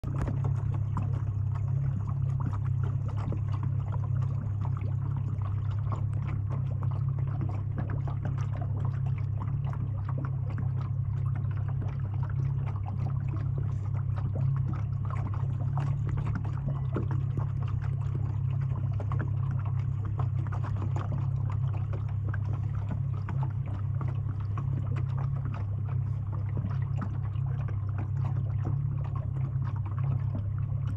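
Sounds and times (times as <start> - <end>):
lake waves lapping: 0.0 - 30.9
steady low hum: 0.0 - 30.9.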